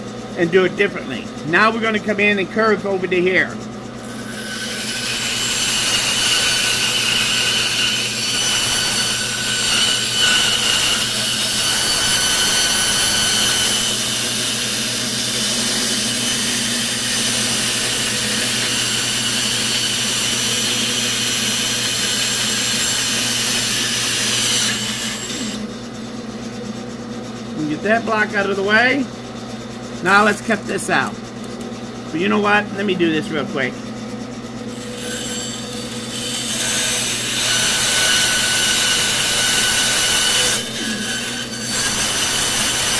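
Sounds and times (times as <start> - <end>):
bandsaw motor hum: 0.0 - 42.9
saw blade cutting wood: 3.5 - 25.8, 30.0 - 31.1, 34.6 - 42.9.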